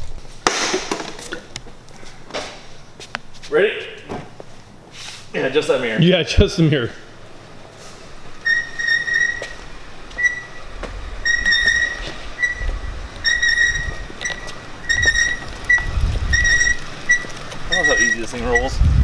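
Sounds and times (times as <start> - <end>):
tyres rolling on concrete: 0.0 - 19.0
wheel squeaking: 6.9 - 19.0.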